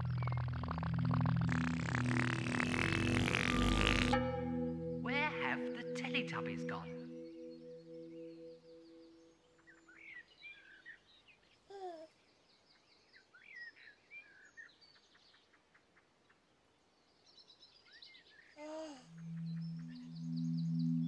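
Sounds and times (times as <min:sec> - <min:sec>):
low sustained music notes: 0:00.0 - 0:09.9, 0:19.1 - 0:21.0
birds chirping and warbling: 0:00.0 - 0:11.6, 0:16.9 - 0:21.0.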